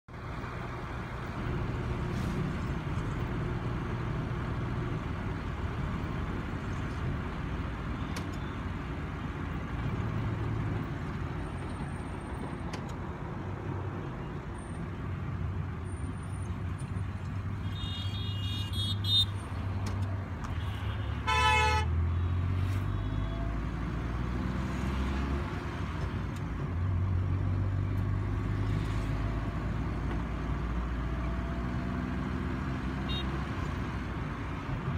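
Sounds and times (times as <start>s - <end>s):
car engine and tyre noise: 0.0s - 34.9s
vehicle horns honking: 17.6s - 19.4s, 20.5s - 23.5s, 33.0s - 33.4s.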